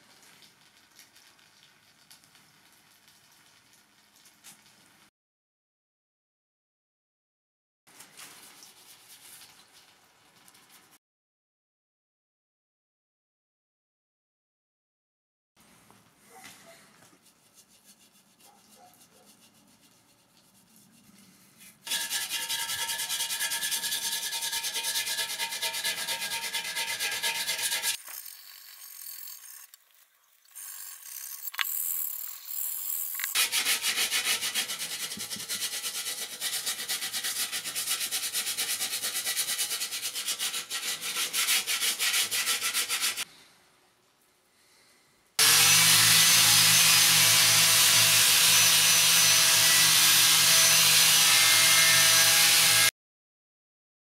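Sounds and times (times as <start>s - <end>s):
sanding metal by hand: 17.2s - 21.2s, 21.9s - 28.0s, 33.4s - 43.2s, 45.4s - 52.9s
angle grinder running: 21.9s - 29.8s, 30.5s - 33.7s, 45.4s - 52.9s.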